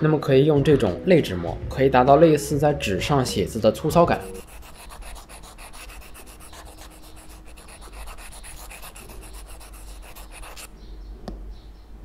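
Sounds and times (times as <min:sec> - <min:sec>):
stylus scratching on matte screen: 0:04.1 - 0:10.7.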